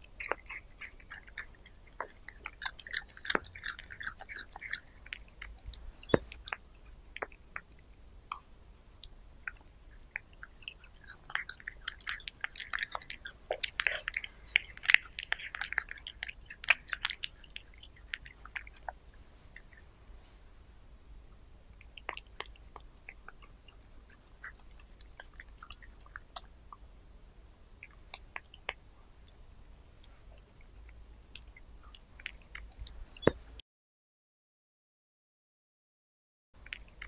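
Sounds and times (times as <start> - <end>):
cat chewing meat: 0.0 - 19.8, 21.8 - 26.6, 30.1 - 33.4.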